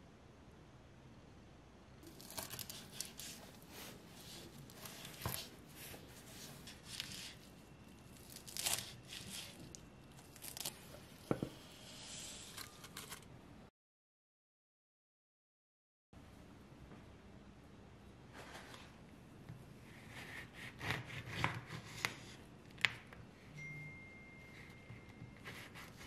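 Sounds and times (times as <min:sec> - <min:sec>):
knife chopping on wooden board: 0:20.1 - 0:22.2.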